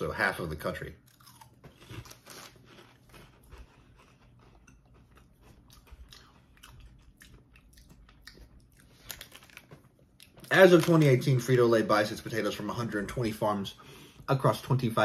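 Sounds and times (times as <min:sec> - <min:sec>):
man chewing potato chips: 0:00.4 - 0:11.6.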